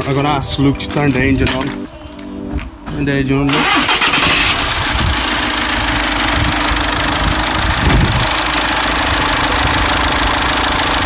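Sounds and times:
diesel car engine idling: 3.4s - 11.0s.

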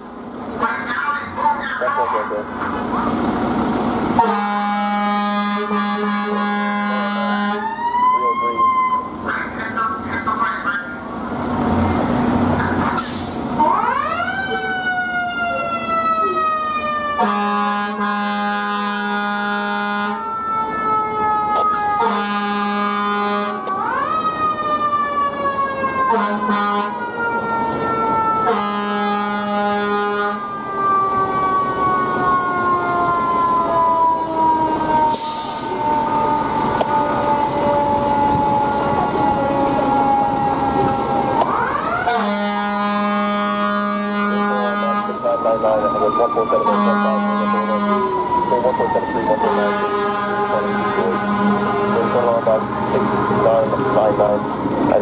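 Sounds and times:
air horn blasts: 4.2s - 7.7s, 17.2s - 20.2s, 22.0s - 23.7s, 26.1s - 27.0s, 28.5s - 30.5s, 42.0s - 45.4s, 46.6s - 48.2s, 49.4s - 52.4s.

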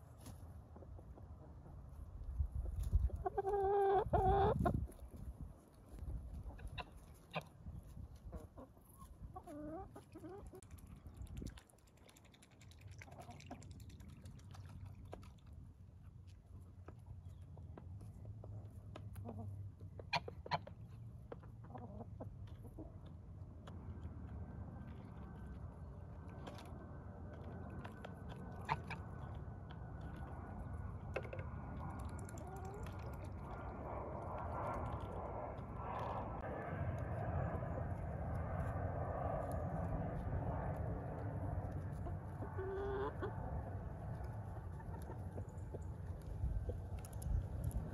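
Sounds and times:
hens clucking: 2.8s - 4.9s, 6.4s - 7.6s, 18.4s - 23.1s, 41.9s - 43.6s, 44.2s - 46.2s
distant engine drone: 22.4s - 47.9s.

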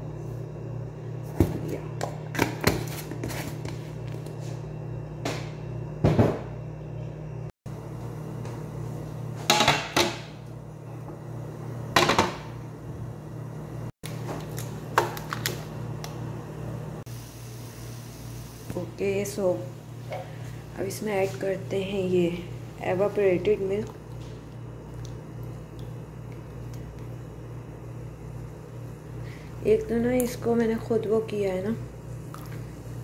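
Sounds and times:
steady low hum: 0.0s - 33.0s
kitchenware clinking and knocking: 9.5s - 10.3s.

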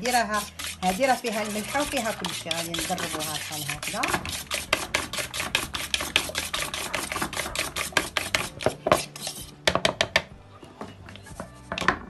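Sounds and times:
fork whisking eggs in bowl: 0.0s - 9.6s.

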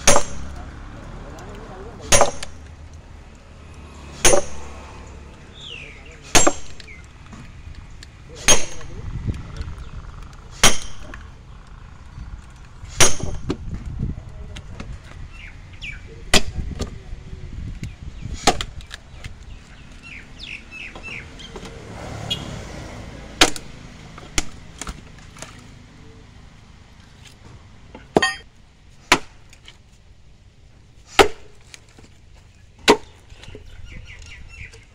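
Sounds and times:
axe striking metal wedge: 0.0s - 0.7s, 2.0s - 2.7s, 4.1s - 4.9s, 6.2s - 7.0s, 8.4s - 9.0s, 10.6s - 11.2s, 12.9s - 13.6s, 23.4s - 23.8s, 28.1s - 28.5s, 29.1s - 29.4s, 31.1s - 31.6s, 32.8s - 33.2s.

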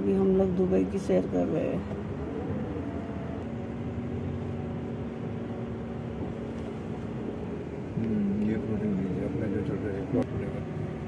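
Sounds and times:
car engine and road hum: 0.0s - 11.0s.

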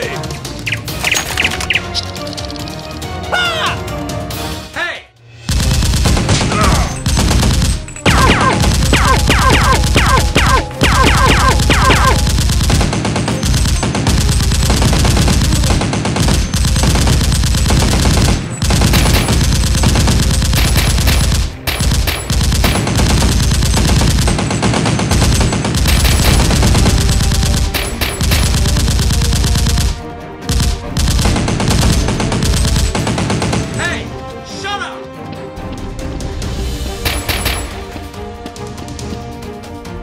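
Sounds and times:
machine-gun firing: 5.4s - 33.9s, 37.0s - 38.0s.

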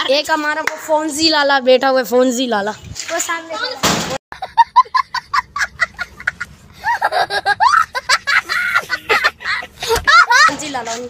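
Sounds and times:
young child laughing: 4.4s - 10.6s.

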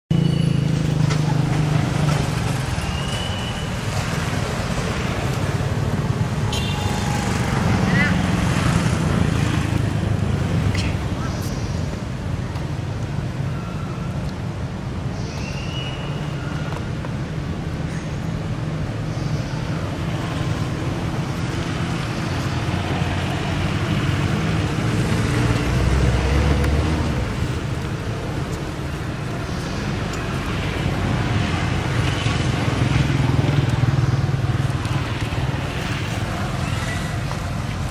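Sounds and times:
vehicle passing: 0.1s - 12.4s, 19.9s - 37.9s
road traffic: 0.1s - 37.9s
motorbike engine humming: 19.9s - 37.9s.

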